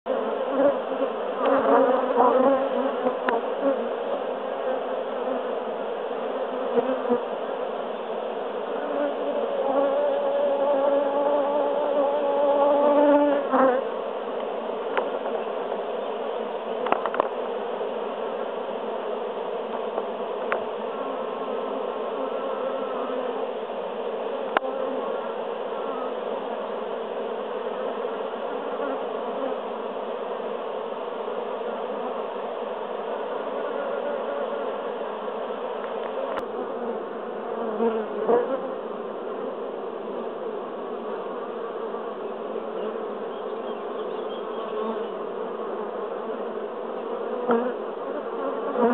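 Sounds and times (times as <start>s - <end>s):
honeybees buzzing: 0.1s - 48.9s.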